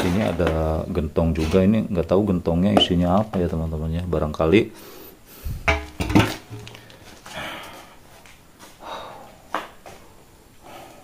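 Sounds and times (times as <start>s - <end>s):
person breathing heavily: 4.8s - 5.7s, 6.6s - 8.1s, 8.8s - 11.0s.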